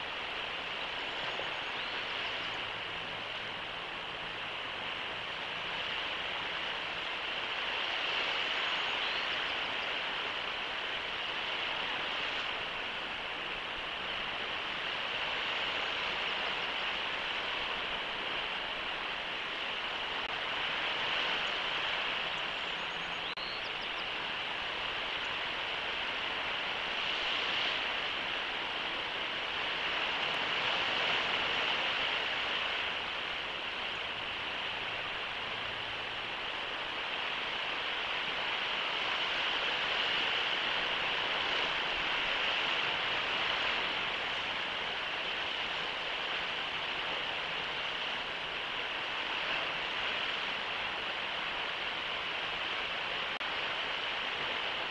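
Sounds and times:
faint high chirp: 22.4 - 24.1.

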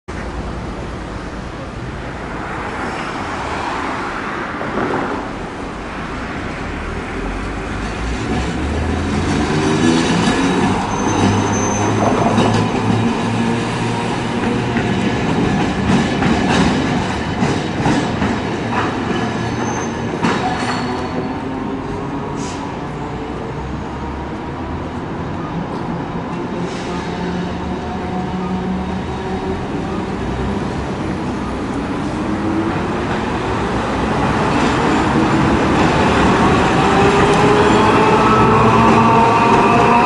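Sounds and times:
streetcar running: 0.1 - 40.0
high wheel squeals: 10.4 - 12.6.

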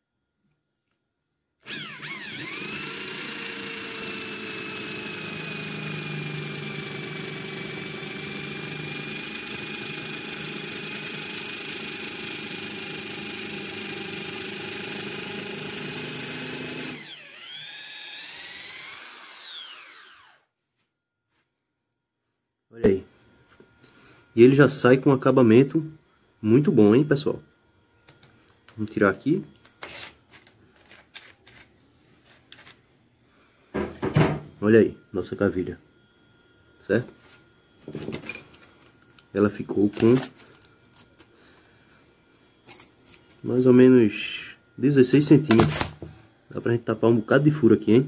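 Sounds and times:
electric drill whining: 1.6 - 20.5
wood shaving noise: 1.6 - 20.5.

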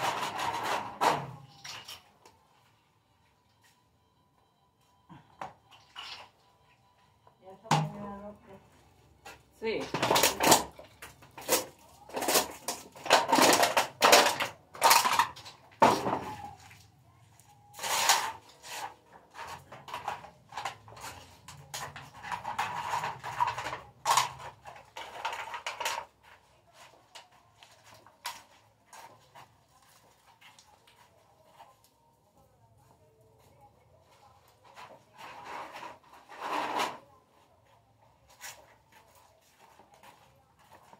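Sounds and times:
junk clattering and crinkling: 9.8 - 16.6.

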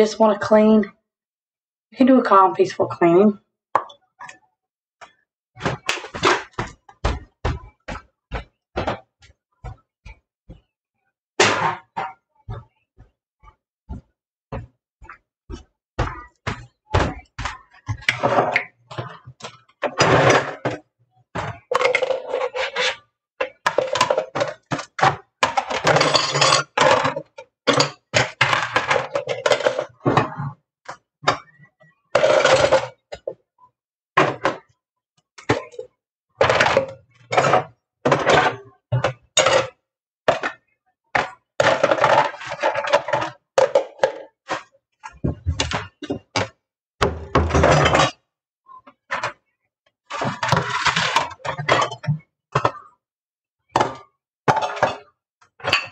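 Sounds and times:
dishes clattering: 21.4 - 30.4, 31.3 - 33.3, 36.4 - 40.6, 41.2 - 48.2, 53.8 - 55.9.

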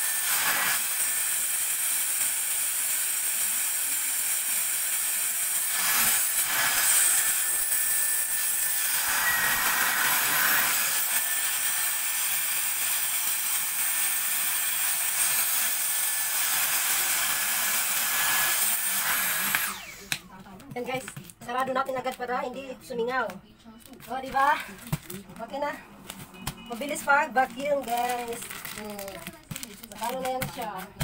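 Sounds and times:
vacuum cleaner whirring hiss: 5.7 - 11.5, 17.0 - 20.2.

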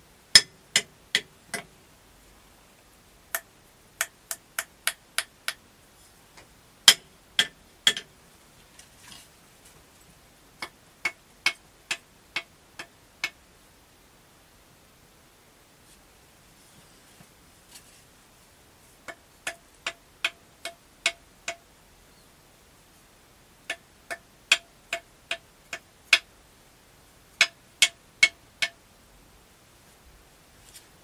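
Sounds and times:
hard object tapping with ringing: 0.4 - 1.7, 6.9 - 8.1, 27.4 - 28.8.

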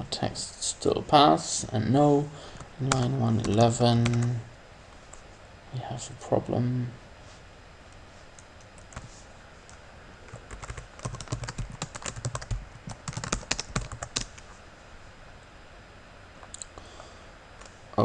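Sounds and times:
typing on computer keyboard: 10.3 - 14.4.

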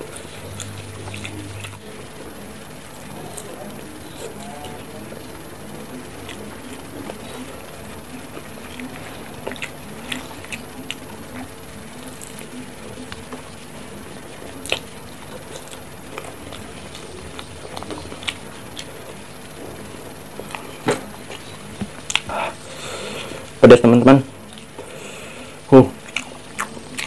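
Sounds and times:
faint steady hum: 0.0 - 27.0
wet chewing clicks and smacks: 26.0 - 27.0.

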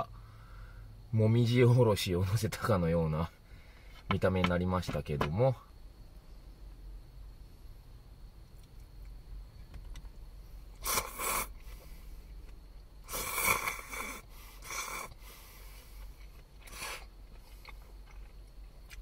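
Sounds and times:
person slurping noodles: 10.8 - 11.5, 13.1 - 15.2, 16.7 - 17.1.

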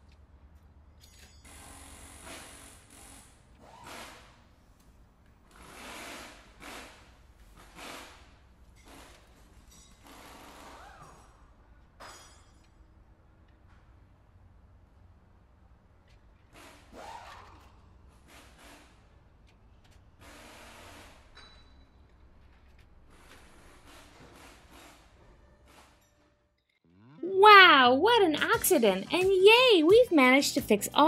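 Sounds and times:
toy cars clicking and scraping on plastic: 22.3 - 24.2.

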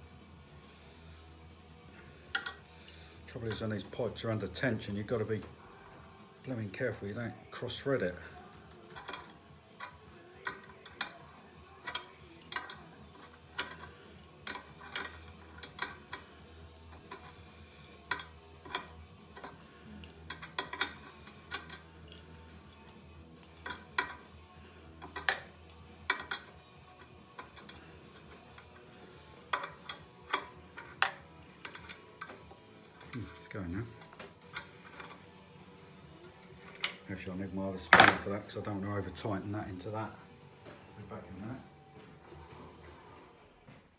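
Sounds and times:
metal fittings clinking: 2.3 - 3.7, 8.8 - 16.2, 16.8 - 24.3, 25.0 - 33.5.

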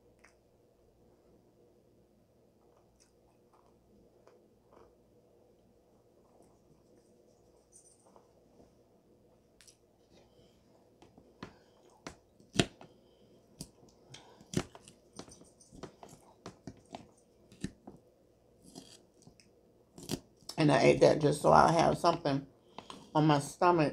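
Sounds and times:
chewing: 2.6 - 5.0.

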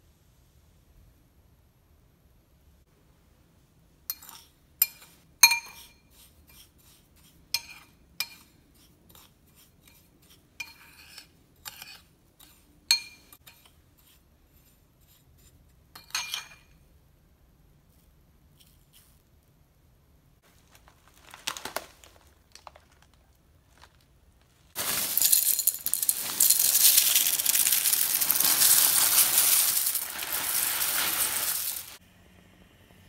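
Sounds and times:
metal spoon clinking ceramic bowl: 16.0 - 16.7.

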